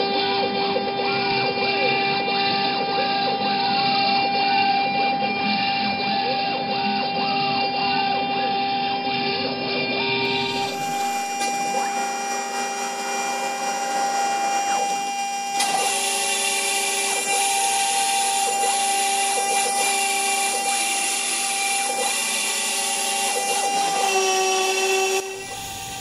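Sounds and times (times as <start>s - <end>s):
router spindle whining: 0.0s - 26.0s
rasping wood cutting noise: 10.2s - 26.0s.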